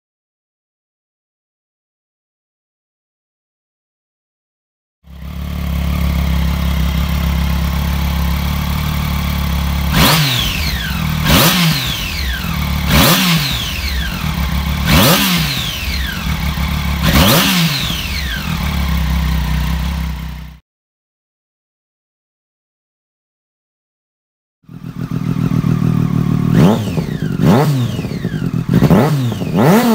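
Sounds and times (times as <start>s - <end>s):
engine revving: 5.1s - 20.6s, 24.7s - 29.9s
motorcycle engine idling: 5.1s - 20.6s, 24.7s - 29.9s.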